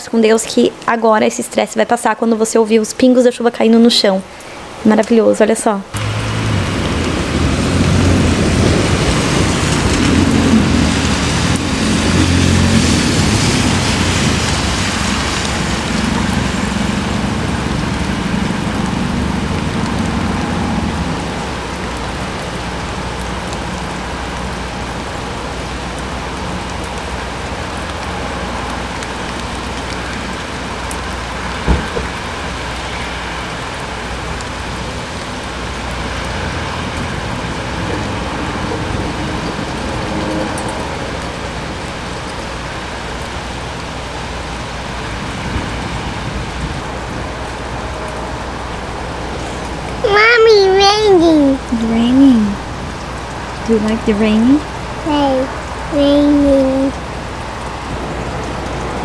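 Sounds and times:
heavy rain falling: 0.0 - 59.0
sharp knock: 31.7 - 32.1.

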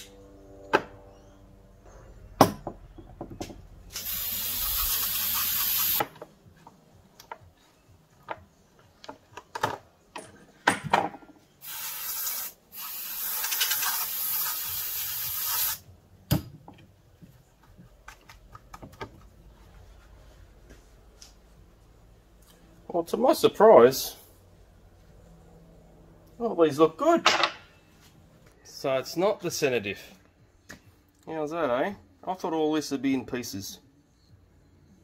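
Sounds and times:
aerosol spray hissing: 3.9 - 6.0, 11.6 - 15.8.

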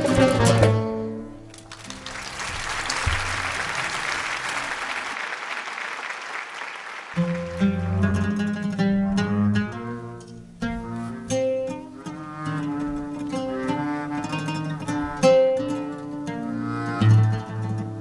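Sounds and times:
jazz band playing: 0.0 - 1.2
audience applauding: 1.5 - 7.6.

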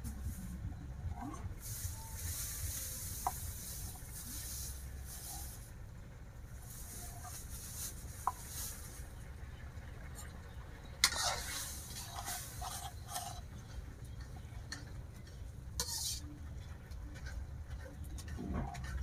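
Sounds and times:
low steady rumble: 0.0 - 19.0.

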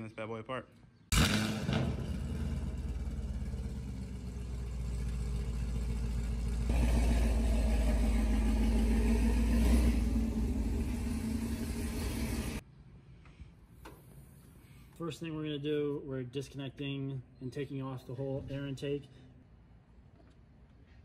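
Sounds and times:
car engine low rumble: 1.1 - 12.6.

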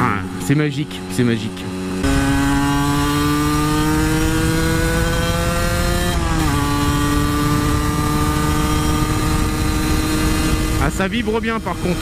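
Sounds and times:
motorcycle engine under load: 0.0 - 12.0
wind on microphone: 3.6 - 12.0.

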